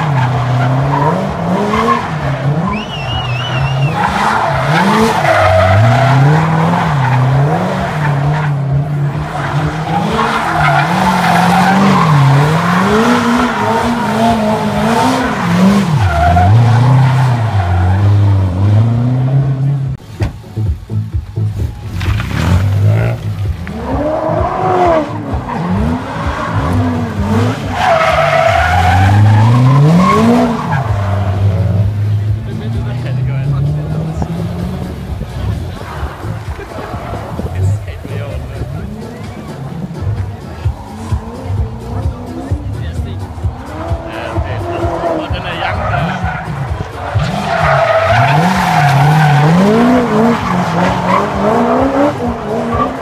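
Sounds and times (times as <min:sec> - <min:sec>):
car engine revving: 0:00.0 - 0:53.0
tyres skidding and squealing: 0:00.0 - 0:53.0
tyre squeal: 0:01.7 - 0:07.3.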